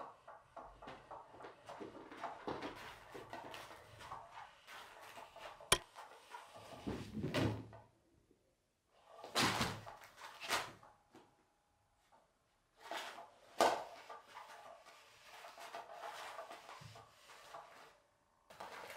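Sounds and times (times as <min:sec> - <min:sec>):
cat toy wand scraping and rustling: 0:01.0 - 0:06.9, 0:12.8 - 0:18.9.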